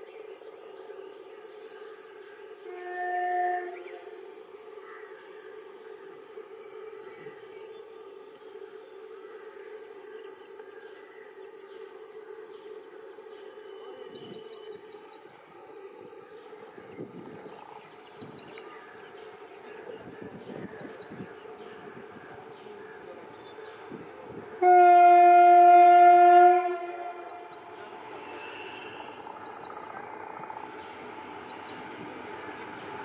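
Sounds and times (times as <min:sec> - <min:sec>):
electric locomotive hum: 0:00.2 - 0:10.5, 0:11.6 - 0:33.0
locomotive horn blast: 0:02.7 - 0:04.1, 0:24.6 - 0:27.8
train wheels rumbling: 0:21.7 - 0:33.0.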